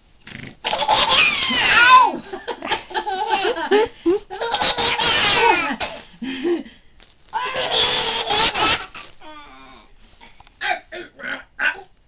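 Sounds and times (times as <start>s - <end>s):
baby squealing: 0.7s - 2.2s, 4.4s - 5.8s, 7.4s - 9.1s
baby laughing: 0.7s - 6.0s, 7.4s - 9.1s.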